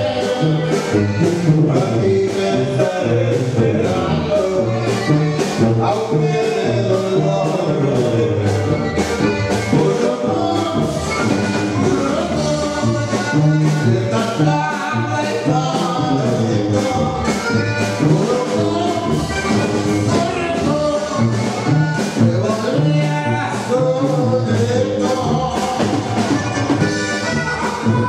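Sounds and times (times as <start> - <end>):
live band playing dance music: 0.0 - 28.0
person singing: 0.0 - 28.0.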